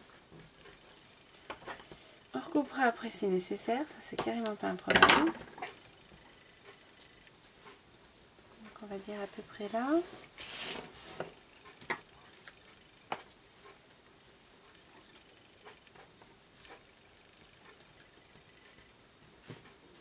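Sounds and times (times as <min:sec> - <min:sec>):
paper rustling: 0:10.1 - 0:11.2.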